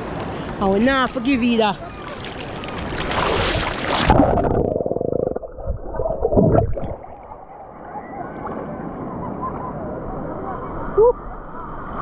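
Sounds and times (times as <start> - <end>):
sea water splashing: 1.7 - 8.8
underwater gurgling and rumbling: 2.4 - 8.8.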